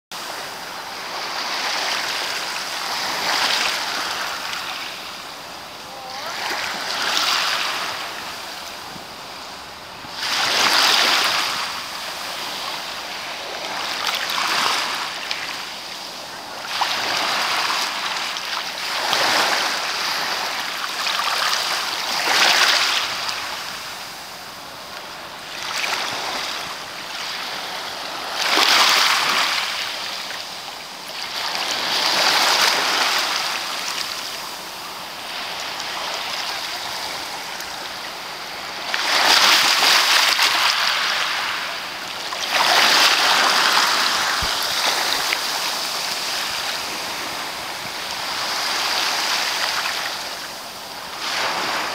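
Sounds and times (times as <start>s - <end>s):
small waves washing up beach: 0.1s - 51.9s.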